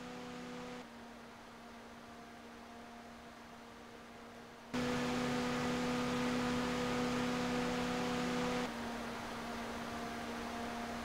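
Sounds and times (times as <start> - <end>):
computer fan humming: 0.0 - 0.8, 4.8 - 9.0
quieter fan low hum: 4.8 - 11.0.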